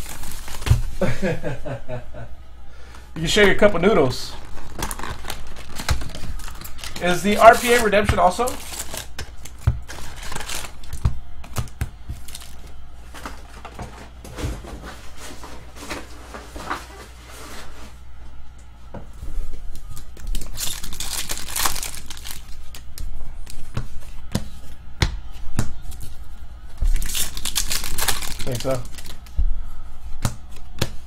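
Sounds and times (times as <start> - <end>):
foil packs crinkling and tearing: 0.0 - 1.1, 3.3 - 13.6, 19.9 - 23.6, 26.9 - 29.3.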